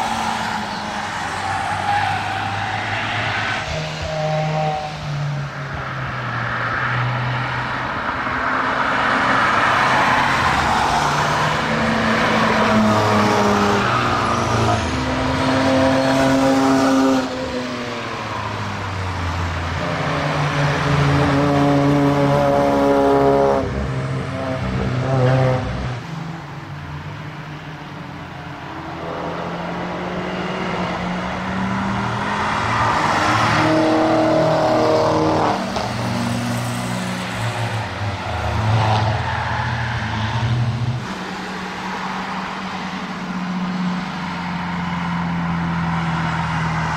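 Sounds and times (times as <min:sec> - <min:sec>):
cars driving past: 0:00.0 - 0:46.9.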